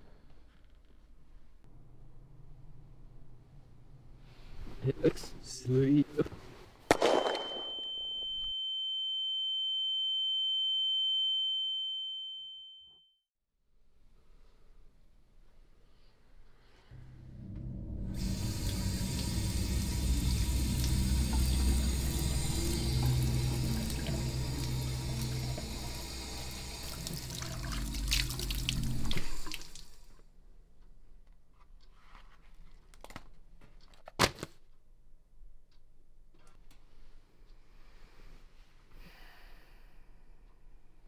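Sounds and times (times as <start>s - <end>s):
high-pitched ringing tone: 7.2s - 13.2s
low steady hum: 17.0s - 31.0s
faucet water running: 18.2s - 30.1s.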